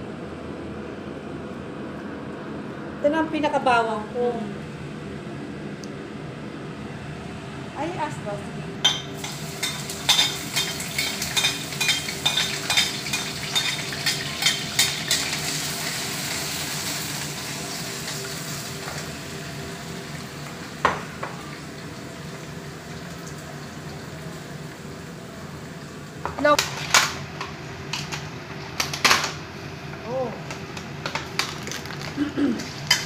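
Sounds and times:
onion and garlic sizzling in oil: 9.0s - 26.6s, 30.8s - 33.0s.

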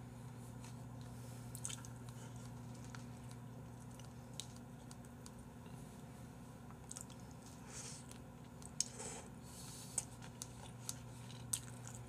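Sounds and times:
chewing noodles: 1.0s - 5.8s, 6.7s - 8.9s, 9.6s - 12.0s.

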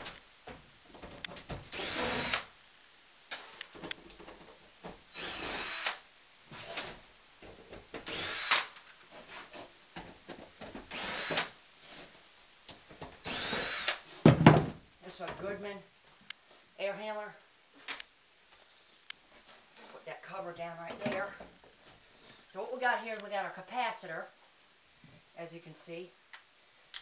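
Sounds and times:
cordless drill whirring: 1.7s - 2.5s, 5.1s - 6.0s, 8.0s - 8.7s, 10.9s - 11.5s, 13.2s - 14.0s
loud thump: 14.2s - 14.8s.

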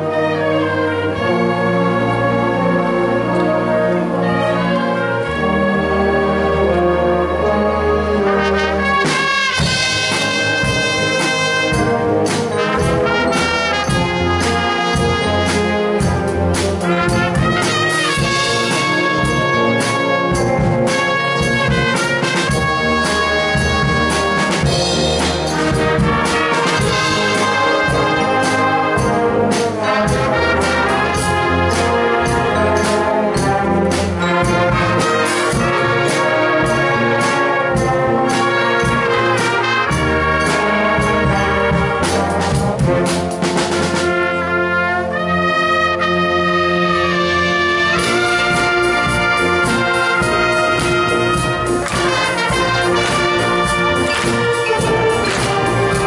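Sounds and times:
wind band playing: 0.0s - 56.0s
sharp percussive strikes: 47.9s - 56.0s.

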